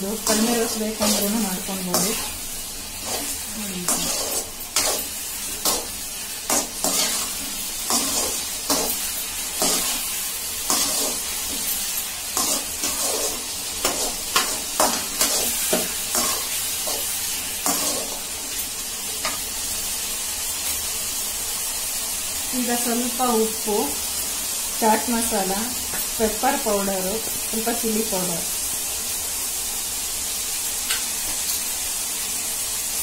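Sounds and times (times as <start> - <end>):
meat sizzling in sauce: 0.0 - 33.0
metal spoon scraping pan: 3.0 - 5.9, 6.5 - 9.0, 10.7 - 17.0.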